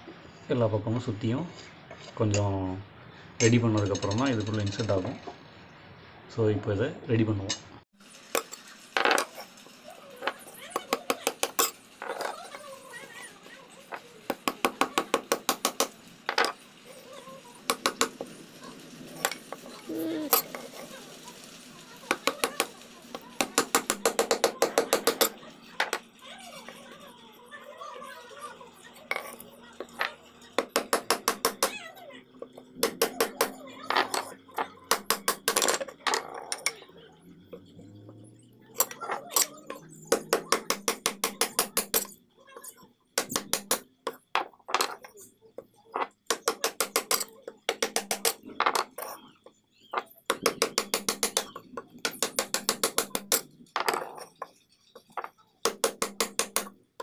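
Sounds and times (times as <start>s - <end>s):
chisel tapping on wood: 30.6s - 31.7s, 50.3s - 53.4s, 55.6s - 56.7s.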